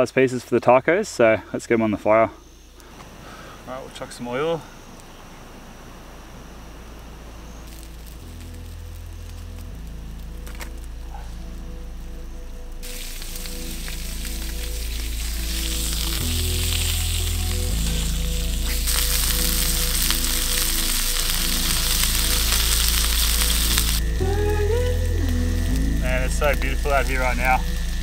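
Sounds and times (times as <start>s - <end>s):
fish sizzling in oil: 7.4s - 28.0s.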